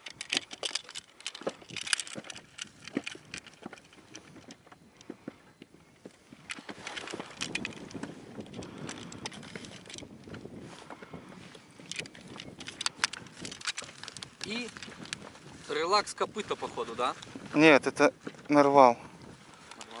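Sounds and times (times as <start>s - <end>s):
knocks and clicks of handling: 0.0s - 15.3s.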